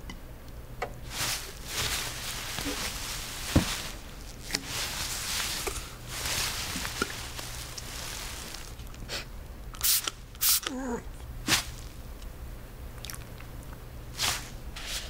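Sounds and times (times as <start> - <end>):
soft rustling: 1.0 - 9.1, 11.5 - 12.0.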